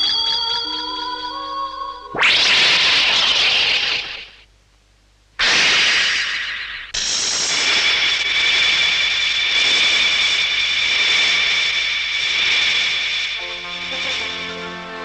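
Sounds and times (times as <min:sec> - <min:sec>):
high ringing tones: 0:00.0 - 0:02.2
loud hissing rush: 0:05.4 - 0:15.0.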